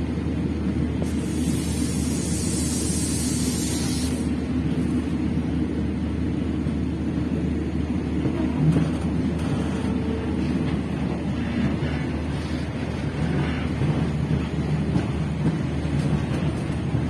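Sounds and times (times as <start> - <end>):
train rumbling along track: 0.0 - 17.0
high hiss: 1.1 - 4.3.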